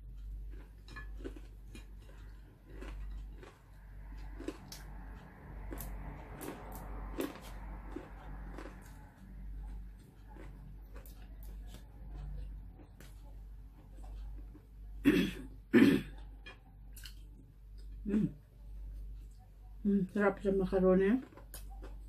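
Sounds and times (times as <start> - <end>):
person chewing: 0.0 - 15.0, 16.1 - 19.5, 21.2 - 22.0
steady low hum: 0.0 - 22.0.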